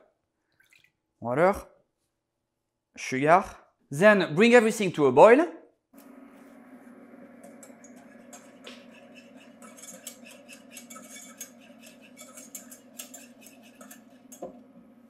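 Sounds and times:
metal utensil scraping saucepan: 7.4s - 14.6s.

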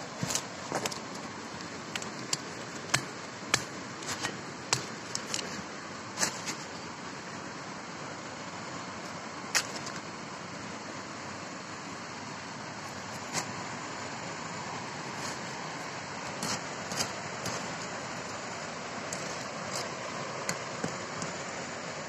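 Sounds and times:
steady hiss: 0.0s - 22.0s
bamboo cracking and chopping: 1.9s - 6.7s.

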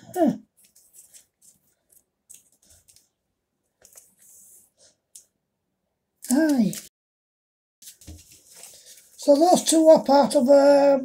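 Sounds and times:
comic books and cards rustling: 0.6s - 4.6s, 7.8s - 10.4s.

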